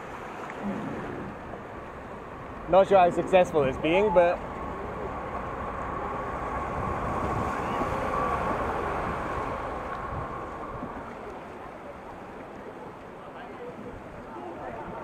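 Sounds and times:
wind buffeting microphone: 0:00.0 - 0:11.6.

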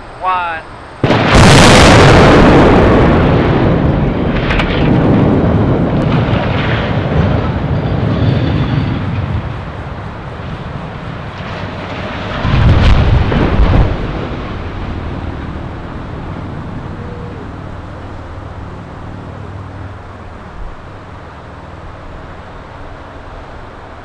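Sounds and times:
smokestack crashing to ground: 0:01.0 - 0:16.9
deep rumble: 0:01.0 - 0:23.7.

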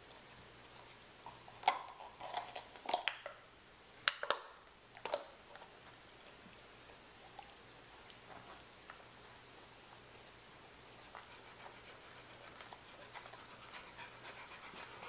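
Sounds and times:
dog chewing plastic cup: 0:01.3 - 0:03.4, 0:04.0 - 0:06.7.

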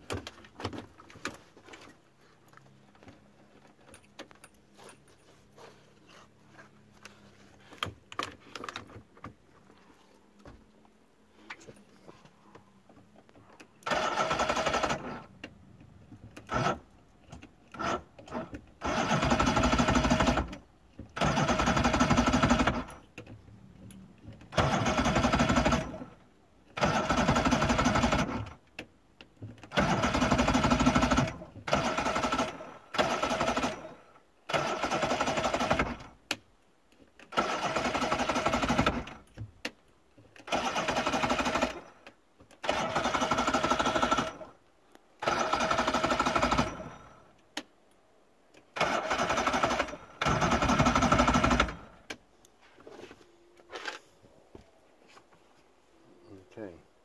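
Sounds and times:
outboard motor electric starter cranking: 0:13.8 - 0:15.4, 0:16.4 - 0:23.0, 0:24.4 - 0:28.6, 0:29.6 - 0:36.2, 0:37.2 - 0:39.3, 0:40.4 - 0:44.6, 0:45.2 - 0:47.4, 0:48.6 - 0:52.1.

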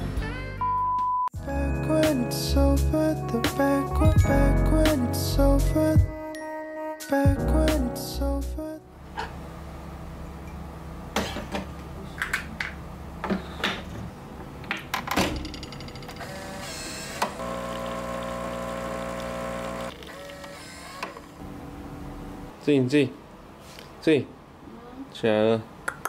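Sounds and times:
coffee machine pump humming: 0:16.3 - 0:21.4
coffee pouring into cup: 0:17.4 - 0:20.5.

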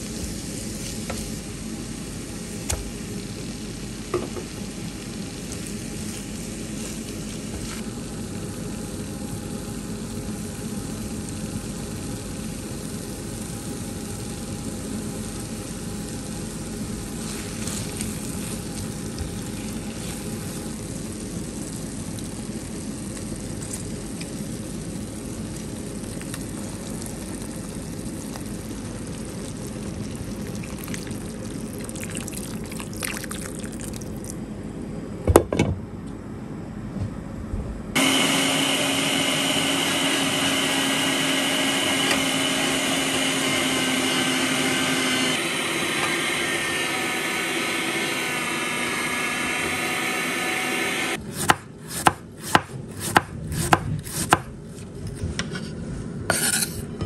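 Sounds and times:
electric juicer whining: 0:38.0 - 0:51.2
knife chopping on wooden board: 0:51.4 - 0:54.5.

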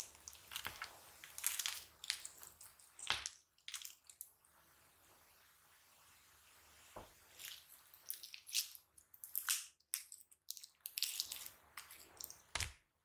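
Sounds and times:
slime popping and crackling: 0:00.0 - 0:04.2.

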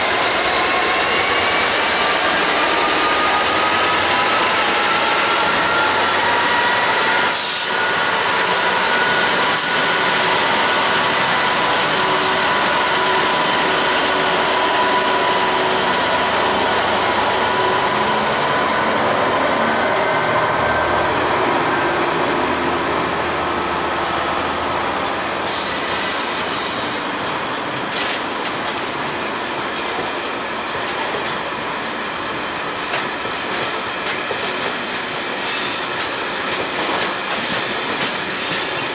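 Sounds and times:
freight train rolling past: 0:00.0 - 0:38.9
high-pitched wheel squeal: 0:25.4 - 0:26.8.

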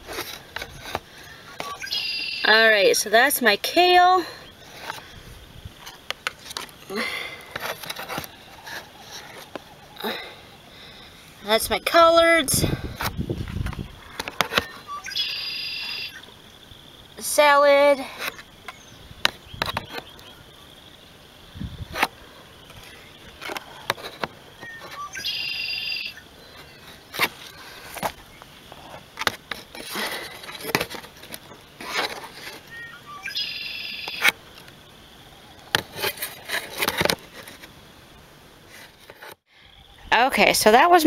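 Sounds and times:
bird calling: 0:00.7 - 0:02.9, 0:13.7 - 0:21.5, 0:22.1 - 0:35.7
plastic jugs clicking and crinkling: 0:05.8 - 0:10.2, 0:12.8 - 0:14.8, 0:18.2 - 0:20.2, 0:21.9 - 0:25.0, 0:26.6 - 0:32.8, 0:35.7 - 0:37.7.

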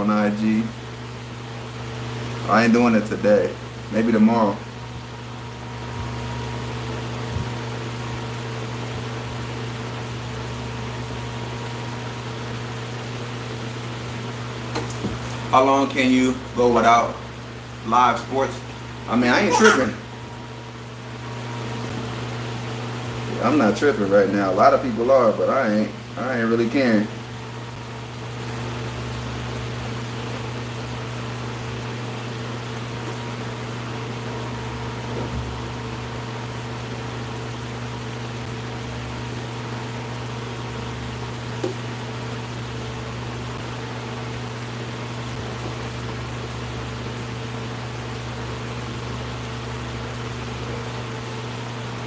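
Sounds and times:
fan motor humming: 0:00.0 - 0:52.0.

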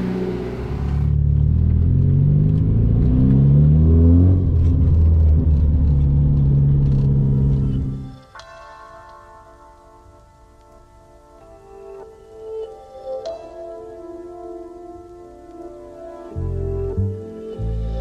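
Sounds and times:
car engine accelerating: 0:00.0 - 0:08.2.

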